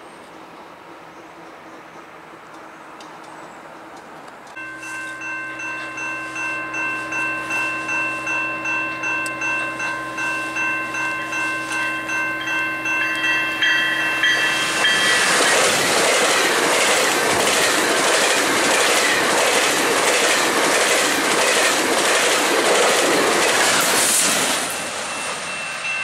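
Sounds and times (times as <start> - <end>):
train wheels rushing on rail: 0.0 - 26.0
clickety-clack of rail joints: 1.9 - 6.0, 11.7 - 26.0
level crossing bell ringing: 4.6 - 15.9, 24.8 - 26.0.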